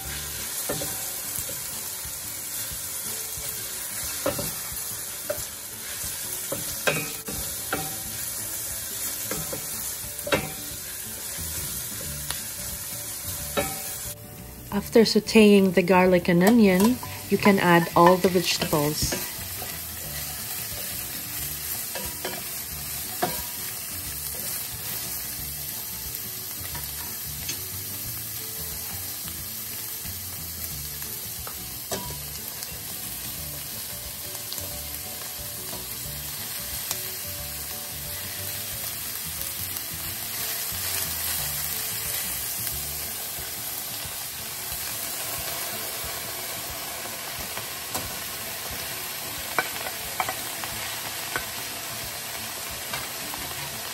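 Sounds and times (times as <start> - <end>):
vegetables sizzling in oil: 0.0 - 53.9.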